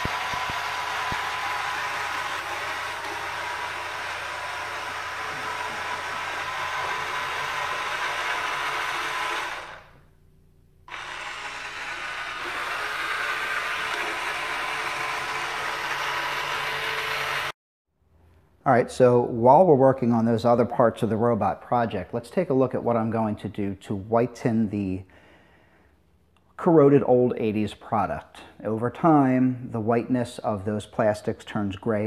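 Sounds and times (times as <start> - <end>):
robot drive motors whirring: 0.0 - 10.0, 10.9 - 17.5.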